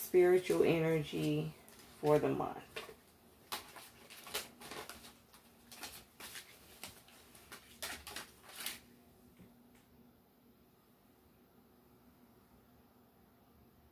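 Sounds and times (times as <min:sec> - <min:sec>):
cards being shuffled: 0:02.7 - 0:08.9.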